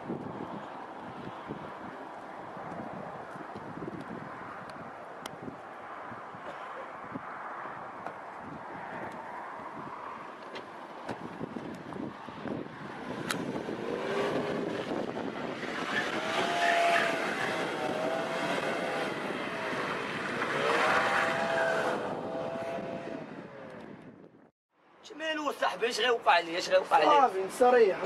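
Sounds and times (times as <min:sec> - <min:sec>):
car engine revving: 0:13.3 - 0:23.6.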